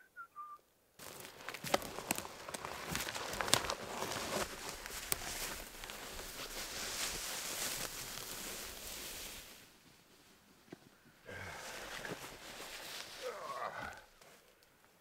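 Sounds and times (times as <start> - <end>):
firewood cracks and knocks: 1.0 - 5.5
rustling hiss: 1.0 - 14.4.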